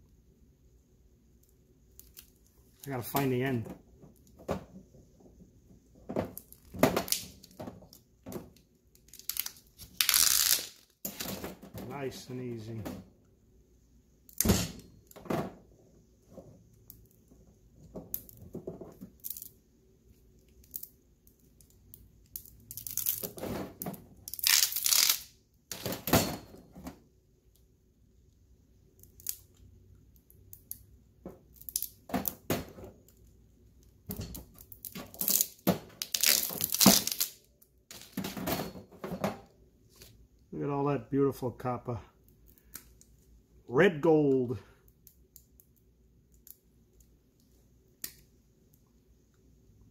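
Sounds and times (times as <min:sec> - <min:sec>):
plastic insulation ripping: 0:09.0 - 0:11.4, 0:24.3 - 0:25.3, 0:34.8 - 0:38.1.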